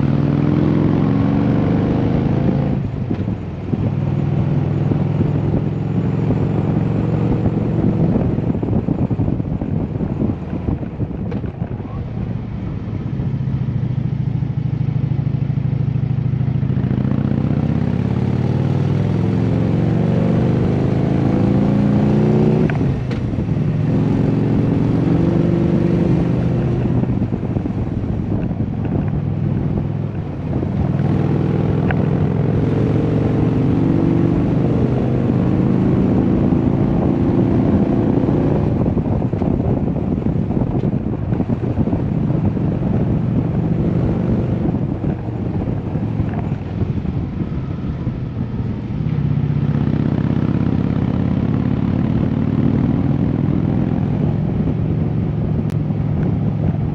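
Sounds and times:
motorcycle engine accelerating: 0.0 - 56.9.

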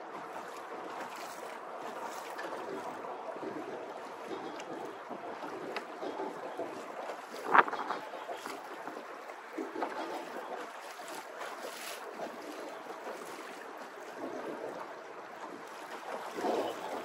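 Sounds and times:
water splashing against boat hull: 0.0 - 17.0
wind on microphone: 2.4 - 11.1.

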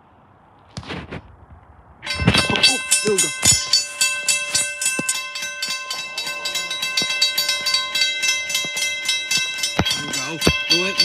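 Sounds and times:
railroad crossing bell ringing: 2.0 - 11.0.

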